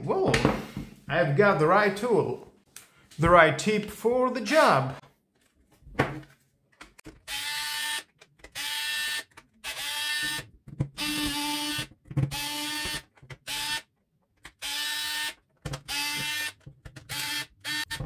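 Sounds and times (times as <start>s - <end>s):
electric screwdriver whirring: 7.2s - 13.9s, 14.5s - 18.0s.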